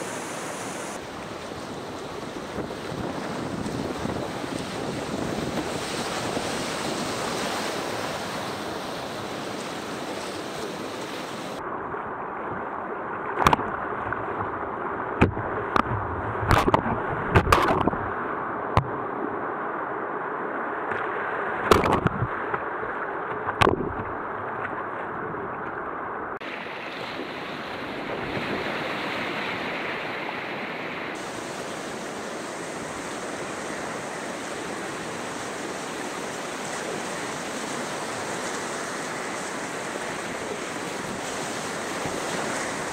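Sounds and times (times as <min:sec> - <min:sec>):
whitewater rushing and splashing: 0:00.0 - 0:11.6, 0:26.4 - 0:42.9
sharp knocks and slaps on hull: 0:13.4 - 0:13.7, 0:15.2 - 0:18.0, 0:21.6 - 0:22.3, 0:23.3 - 0:24.7.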